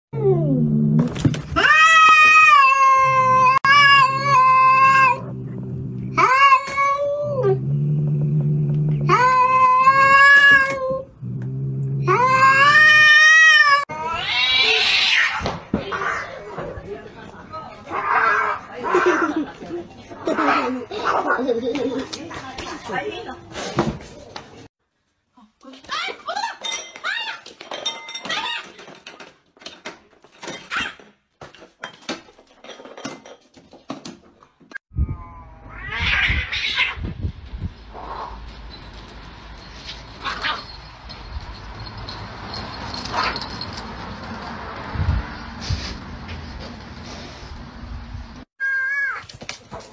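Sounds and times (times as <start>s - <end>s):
cat crying: 1.6s - 5.2s, 6.2s - 7.6s, 9.1s - 11.1s, 12.0s - 15.4s, 35.0s - 37.1s
cat yowling: 1.6s - 5.2s, 6.2s - 7.6s, 12.0s - 16.2s, 35.0s - 37.0s
cat growling: 2.8s - 12.8s.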